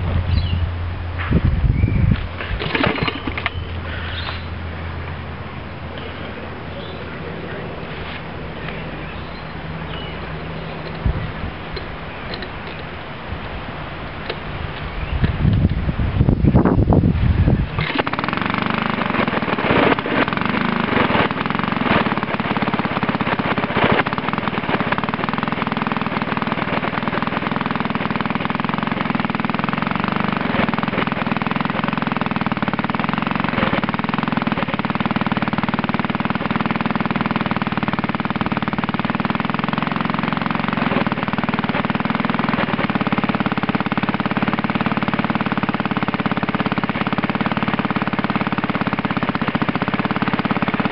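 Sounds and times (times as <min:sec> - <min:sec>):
sharp engine knocks: 0:00.0 - 0:04.5
small petrol engine running: 0:00.0 - 0:50.9.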